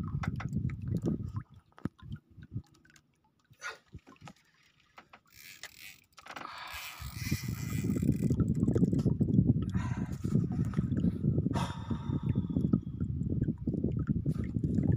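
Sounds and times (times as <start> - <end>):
wind buffeting microphone: 0.0 - 1.4, 7.0 - 14.9.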